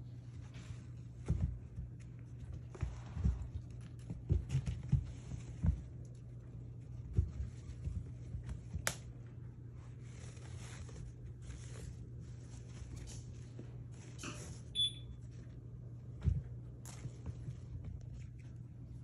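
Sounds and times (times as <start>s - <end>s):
paws rustling on carpet: 0.0s - 14.2s, 15.2s - 19.0s
high beep: 14.8s - 15.1s.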